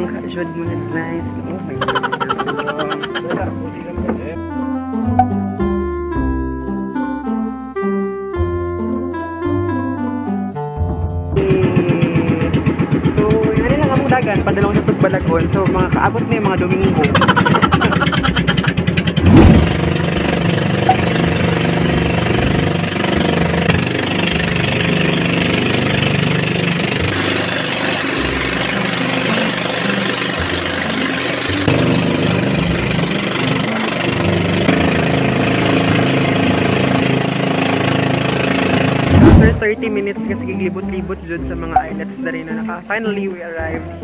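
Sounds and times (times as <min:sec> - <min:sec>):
boat engine running: 0:00.0 - 0:04.4, 0:11.4 - 0:44.0
loud engine burst: 0:17.1 - 0:39.6.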